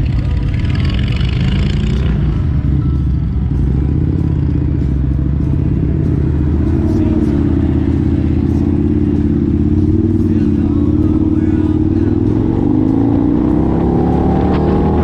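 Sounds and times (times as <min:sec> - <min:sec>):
motorcycle engines idling: 0:00.0 - 0:13.4
traffic passing: 0:00.0 - 0:15.0.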